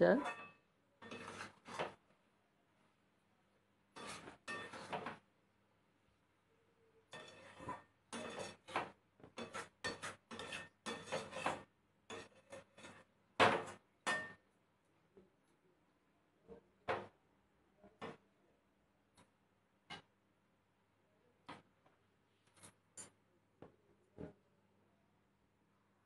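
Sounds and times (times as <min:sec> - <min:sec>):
spatula scraping metal pan: 0:00.2 - 0:02.0, 0:03.9 - 0:05.2, 0:07.1 - 0:14.3.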